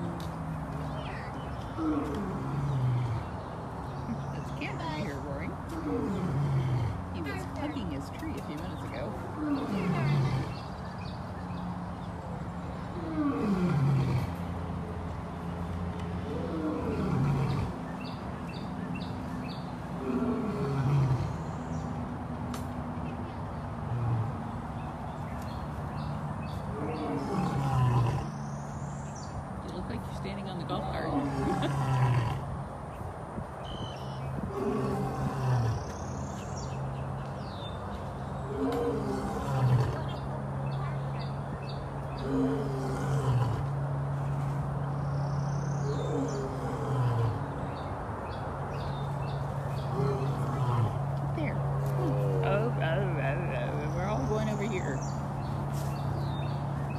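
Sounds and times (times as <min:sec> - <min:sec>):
big cat deep calls: 0:26.7 - 0:28.3, 0:34.4 - 0:35.9, 0:38.4 - 0:40.2, 0:42.2 - 0:43.8, 0:45.8 - 0:47.6, 0:49.8 - 0:52.8.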